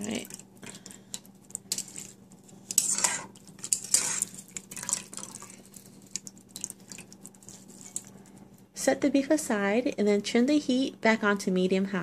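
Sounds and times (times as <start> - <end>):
metal tongs scraping saucepan: 2.7 - 4.4.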